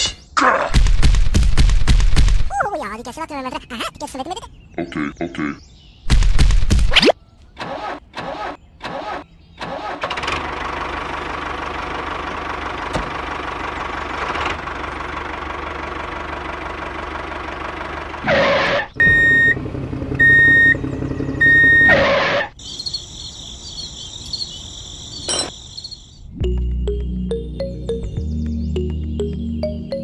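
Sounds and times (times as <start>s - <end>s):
engine running: 7.6s - 22.6s
warbling cricket-like chirping: 22.6s - 26.2s.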